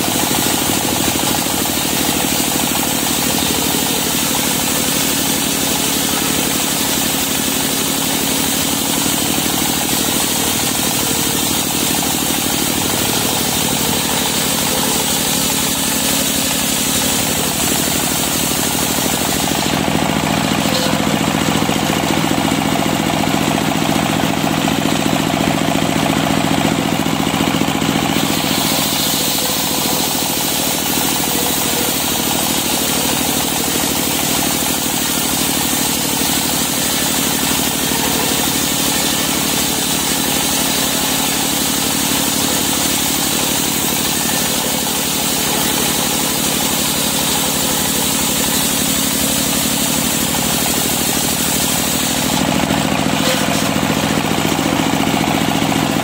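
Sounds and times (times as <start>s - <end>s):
circular saw cutting wood: 0.0s - 56.0s
saw blade spinning: 8.1s - 25.3s, 27.1s - 40.3s.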